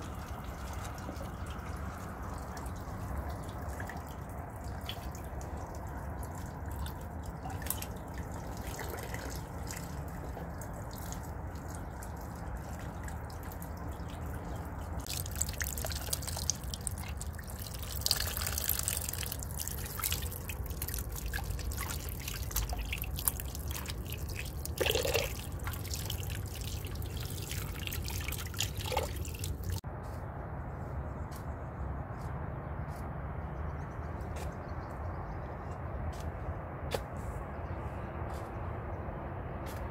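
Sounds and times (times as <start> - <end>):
water dripping: 0.0 - 29.8
tap water splashing into pot: 15.0 - 29.6.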